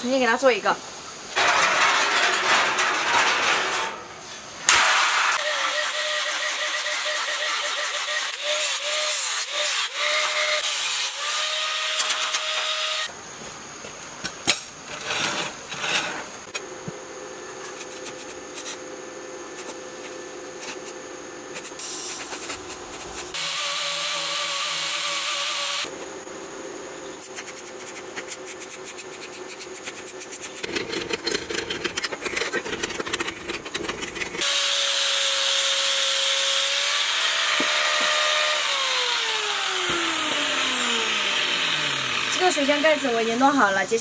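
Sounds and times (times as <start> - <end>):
angle grinder running: 4.7 - 13.1, 23.3 - 25.9, 33.2 - 43.7
power tool whine: 4.7 - 13.1, 23.3 - 25.9, 34.4 - 43.6.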